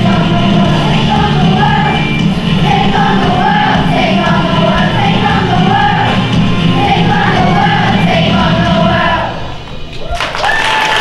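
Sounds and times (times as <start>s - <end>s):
children's choir singing: 0.0s - 9.6s
low musical accompaniment: 0.0s - 9.9s.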